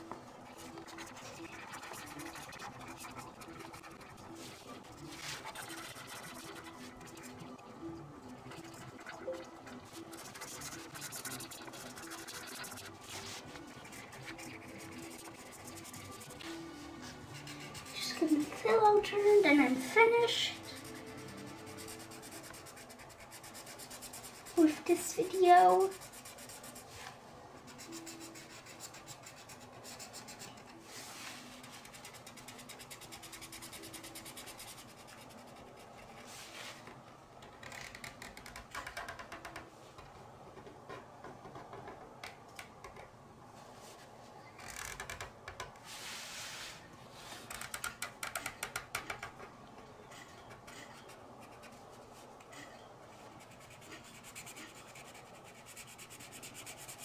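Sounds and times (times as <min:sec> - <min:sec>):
marker scratching on paper: 0:00.5 - 0:07.6, 0:08.4 - 0:36.8, 0:50.1 - 0:57.0.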